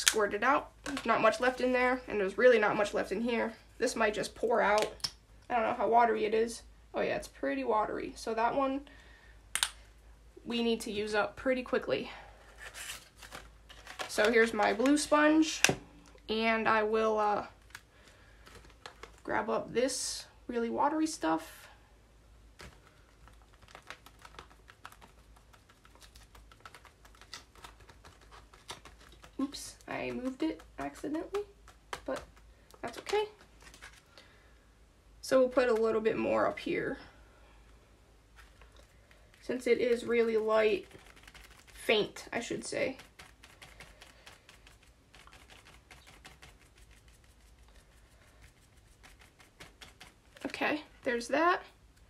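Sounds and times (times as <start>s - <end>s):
sponge dabbing paint on paper: 39.3s - 50.6s.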